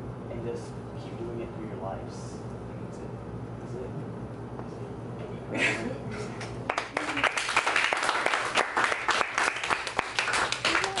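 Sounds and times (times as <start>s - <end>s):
audience applauding: 6.7s - 11.0s.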